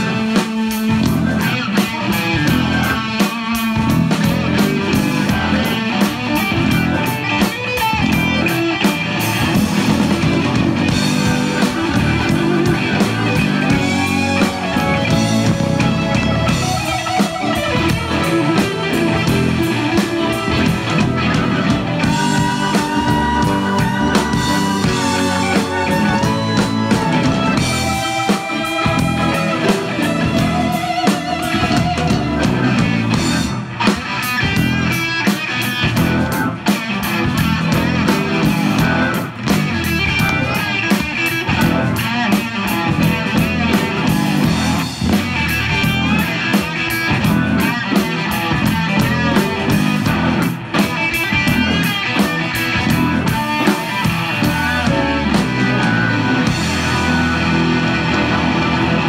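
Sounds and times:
bending electric guitar lead: 0.0 - 59.0
rock band playing: 0.0 - 59.0.

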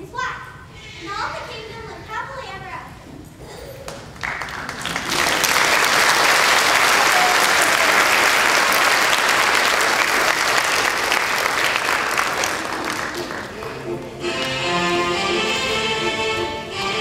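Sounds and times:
audience applauding: 3.9 - 14.8.

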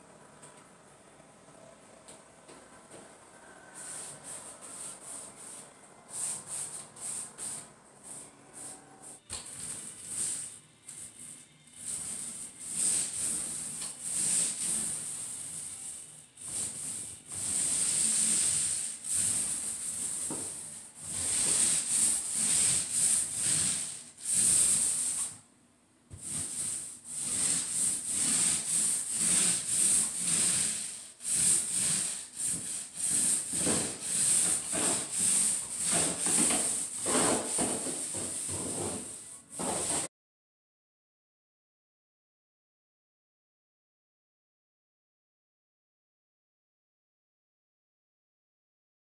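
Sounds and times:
paint roller hissing rub: 3.8 - 25.4, 26.1 - 40.1.

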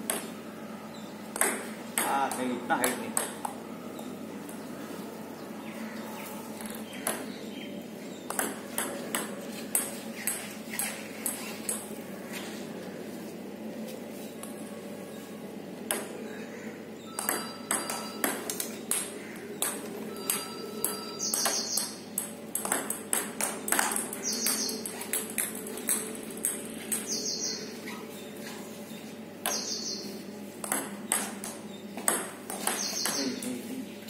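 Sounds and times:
table tennis ball hits: 1.3 - 3.6, 8.3 - 11.8, 15.9 - 16.1, 17.2 - 27.1, 30.6 - 33.4.

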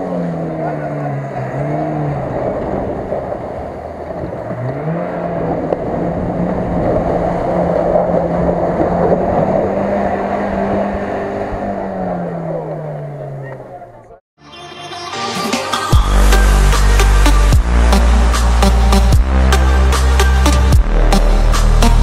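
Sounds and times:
car engine revving: 0.0 - 14.2, 16.0 - 22.0
water splashing and sloshing: 1.6 - 11.9.

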